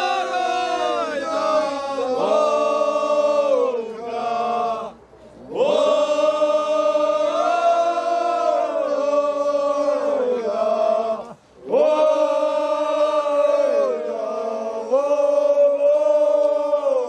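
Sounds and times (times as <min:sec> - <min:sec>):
group chanting in unison: 0:00.0 - 0:17.0.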